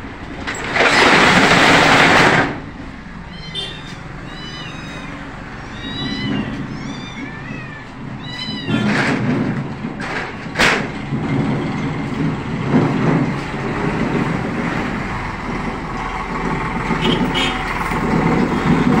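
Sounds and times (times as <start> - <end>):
sharp knocks and rustles: 0.1 - 3.0, 5.6 - 19.0
cats meowing: 3.1 - 9.9.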